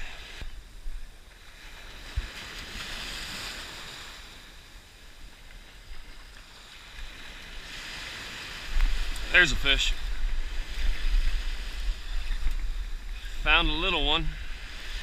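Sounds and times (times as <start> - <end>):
surf washing over sandy shore: 0.0 - 15.0
wind rumble on microphone: 5.4 - 15.0.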